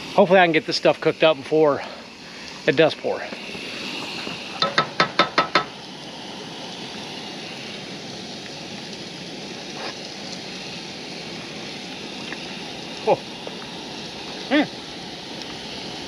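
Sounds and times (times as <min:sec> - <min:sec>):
meat sizzling on a grill: 0:00.0 - 0:16.0.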